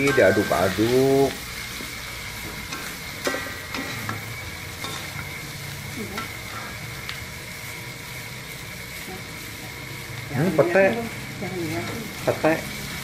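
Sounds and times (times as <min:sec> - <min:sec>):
squid sizzling in a wok: 0:00.0 - 0:13.0
metal spatula scraping a wok: 0:02.3 - 0:05.4.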